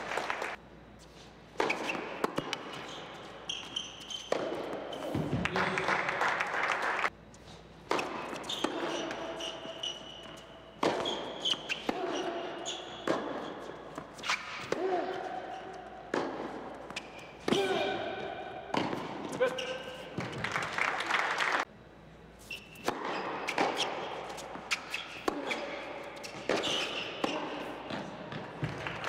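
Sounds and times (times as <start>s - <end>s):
shoes squeaking on court: 0.8s - 5.4s, 7.2s - 20.5s, 22.4s - 29.0s
racquet hitting ball: 1.5s - 5.9s, 7.8s - 20.5s, 22.8s - 29.0s
tennis ball bouncing: 1.6s - 5.4s, 7.8s - 15.2s, 15.8s - 17.7s, 18.6s - 20.4s, 22.8s - 28.8s.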